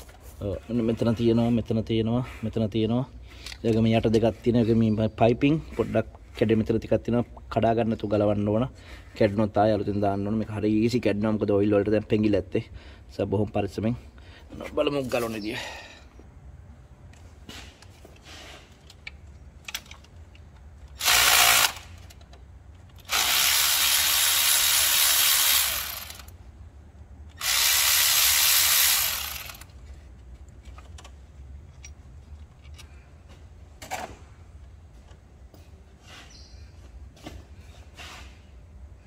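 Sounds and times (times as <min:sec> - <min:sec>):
clicks and knocks of tools: 0:17.1 - 0:21.0, 0:29.6 - 0:35.6
power tool undoing bolts: 0:20.9 - 0:22.3, 0:22.9 - 0:26.4, 0:27.3 - 0:29.8.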